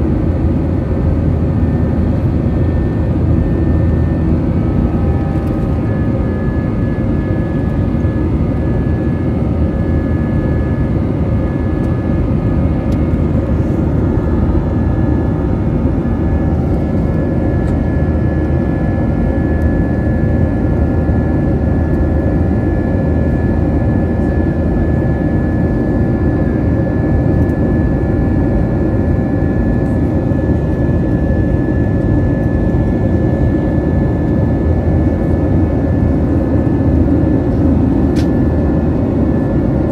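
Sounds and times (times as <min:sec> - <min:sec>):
airflow rush in cabin: 0:00.0 - 0:24.4, 0:26.0 - 0:39.9
jet engines: 0:00.0 - 0:39.9
steady whining tones: 0:00.2 - 0:22.5.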